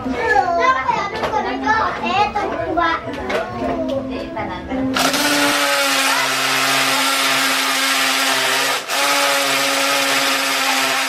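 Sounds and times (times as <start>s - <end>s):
cordless drill boring into wood: 5.0s - 11.0s.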